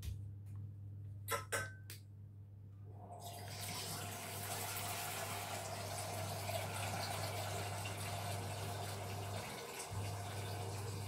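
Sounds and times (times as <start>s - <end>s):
tap water filling a saucepan: 3.2s - 11.0s.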